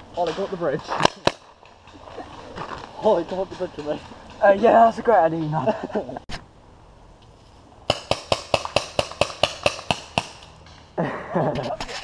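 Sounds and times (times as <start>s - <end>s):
paintball marker shots: 7.9s - 10.5s.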